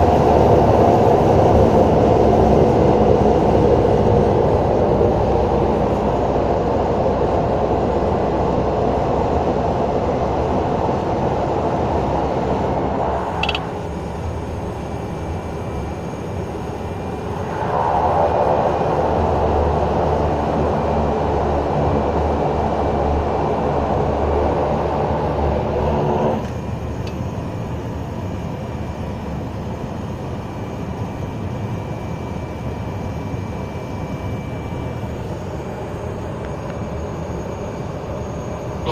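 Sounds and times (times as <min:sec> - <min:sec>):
turboprop engine and propeller: 0:00.0 - 0:38.9
faint high whine: 0:12.5 - 0:23.4, 0:25.6 - 0:38.9.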